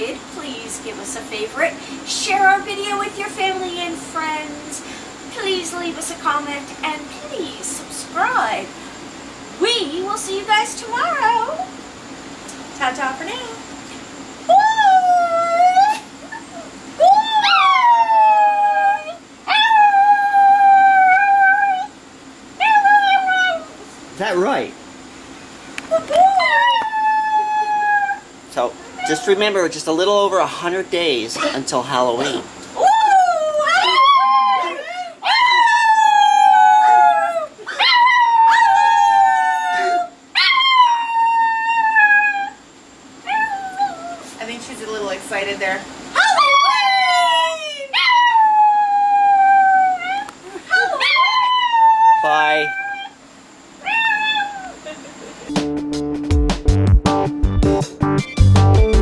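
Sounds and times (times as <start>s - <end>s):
dog howling: 14.5s - 22.0s, 22.6s - 23.8s, 25.9s - 29.4s, 32.3s - 44.3s, 46.1s - 53.2s, 53.8s - 55.0s.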